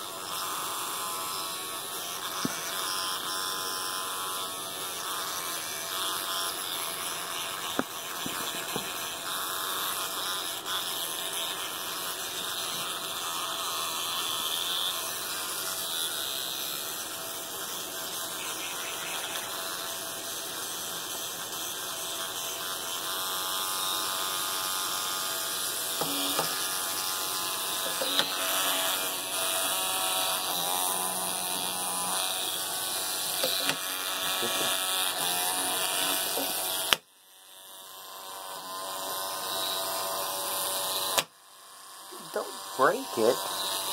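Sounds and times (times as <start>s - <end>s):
electric toothbrush buzzing: 0.0s - 43.9s.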